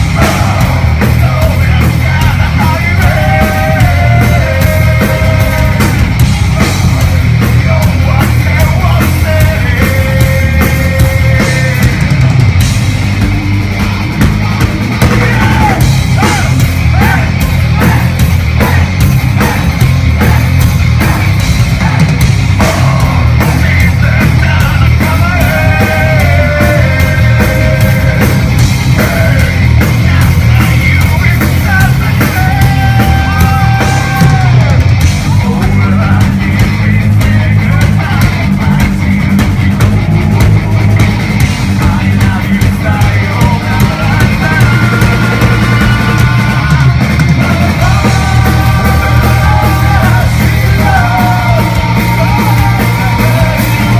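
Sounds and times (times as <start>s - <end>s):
rock band playing live: 0.0s - 53.9s.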